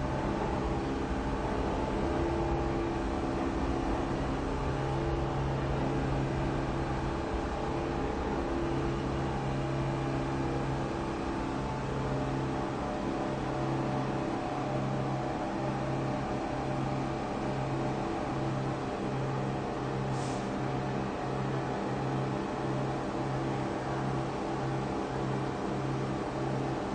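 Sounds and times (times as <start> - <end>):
low mechanical drone: 0.0 - 26.9.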